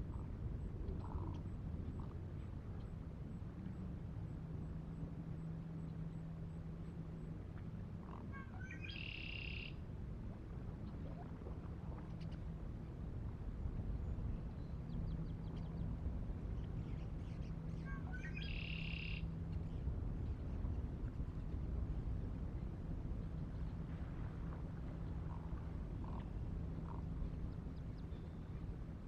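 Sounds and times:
low steady hum and rumble: 0:00.0 - 0:29.0
songbird singing with buzzy trill: 0:08.6 - 0:09.7, 0:16.8 - 0:19.3.

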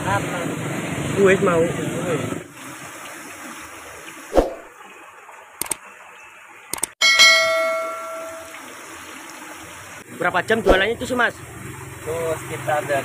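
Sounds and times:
short clicks: 0:05.6 - 0:05.8, 0:06.7 - 0:07.0
bell chime sound effect: 0:07.0 - 0:08.5.

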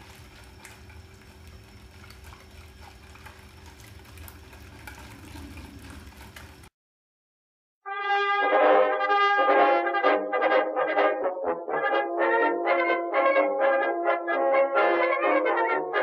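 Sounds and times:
whisk swishing liquid: 0:00.0 - 0:06.7.

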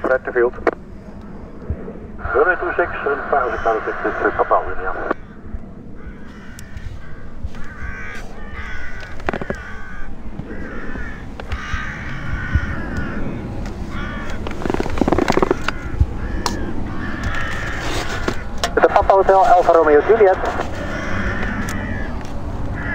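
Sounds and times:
steady low rumble: 0:00.0 - 0:22.9
crows cawing: 0:05.2 - 0:18.7, 0:19.8 - 0:22.9.

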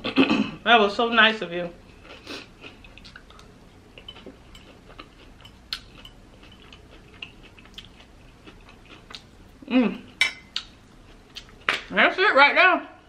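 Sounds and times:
chewing with wet mouth clicks: 0:02.0 - 0:09.3, 0:10.5 - 0:11.9.

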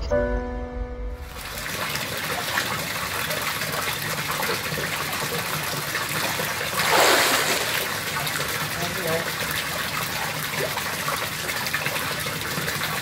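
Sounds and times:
short music: 0:00.0 - 0:01.4
pool water sloshing and splashing: 0:01.3 - 0:13.0.

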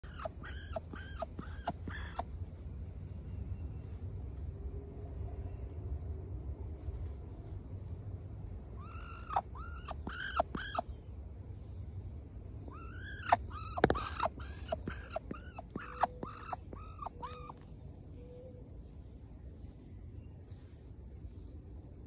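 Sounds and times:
duck chirping calls: 0:00.0 - 0:02.3, 0:08.8 - 0:10.9, 0:12.7 - 0:17.6.

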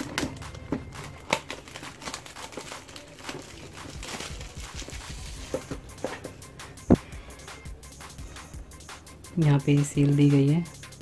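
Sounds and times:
plastic shrink-wrap crinkling: 0:00.0 - 0:05.8.

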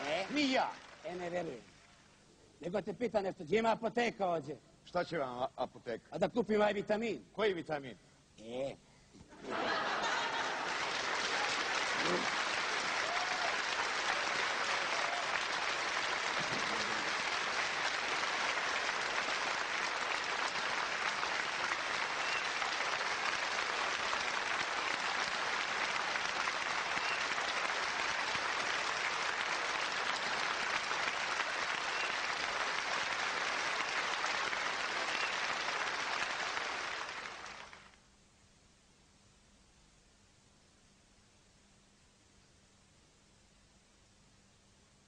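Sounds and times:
audience applauding: 0:00.0 - 0:01.6, 0:09.4 - 0:38.0.

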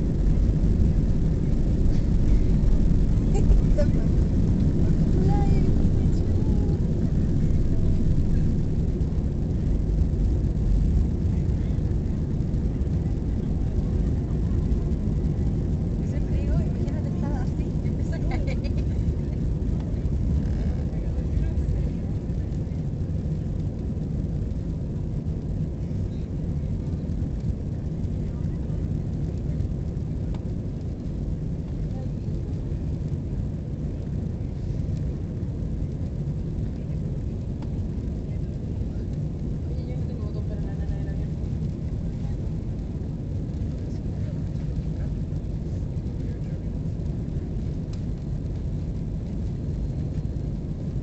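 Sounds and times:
rushing air: 0:00.0 - 0:18.3
airliner engines rumbling in cabin: 0:00.0 - 0:51.0.

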